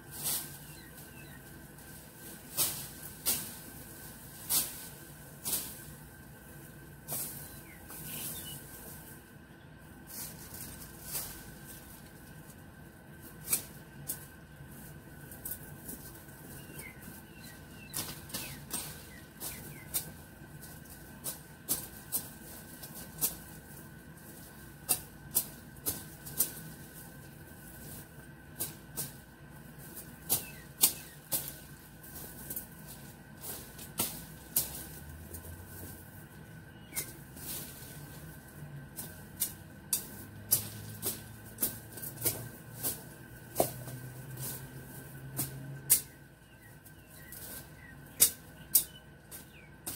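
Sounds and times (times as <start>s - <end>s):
dry twigs snapping and crackling: 13.2s - 49.9s.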